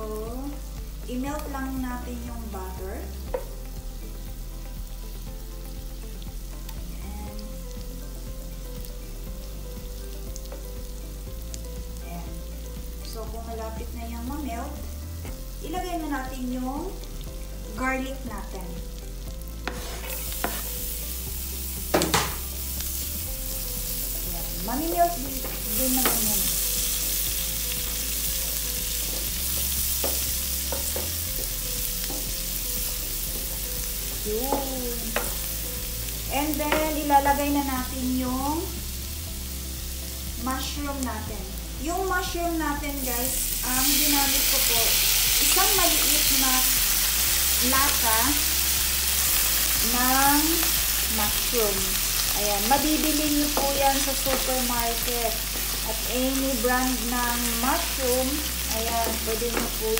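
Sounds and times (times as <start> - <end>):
butter sizzling in a frying pan: 0.0 - 59.9
spatula stirring in pan: 19.6 - 20.8.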